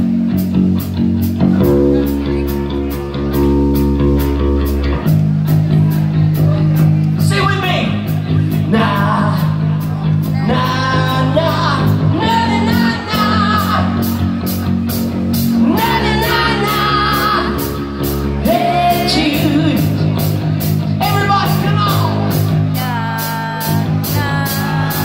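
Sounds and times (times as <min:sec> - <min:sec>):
live rock band playing: 0:00.0 - 0:25.0
sung vocals: 0:08.3 - 0:14.6, 0:15.3 - 0:20.3, 0:21.0 - 0:25.0.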